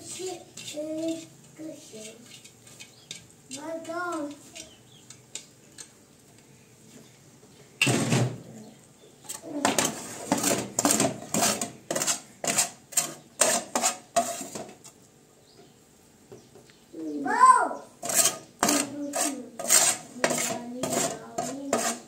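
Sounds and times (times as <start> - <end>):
metal spatula scraping pan: 0.0 - 5.9, 9.3 - 14.9, 18.0 - 22.0.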